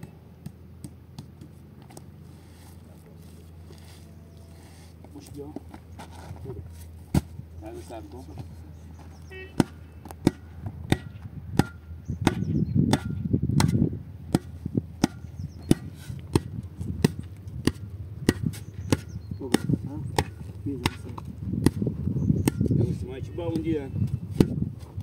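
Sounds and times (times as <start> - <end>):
hand tool striking with ring: 9.6 - 16.5, 22.4 - 22.9.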